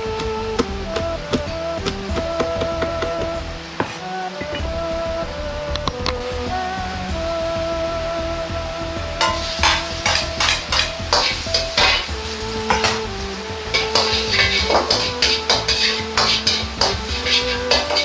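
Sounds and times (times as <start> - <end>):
garlic sizzling in oil: 0.0 - 4.8, 8.4 - 18.0
soft background music: 0.0 - 18.0
metal ladle scraping a wok: 9.2 - 18.0.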